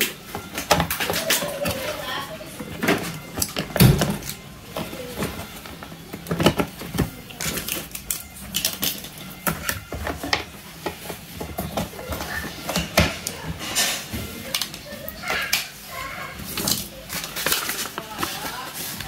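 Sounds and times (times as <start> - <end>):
plastic toy pieces clicking: 6.2 - 9.9.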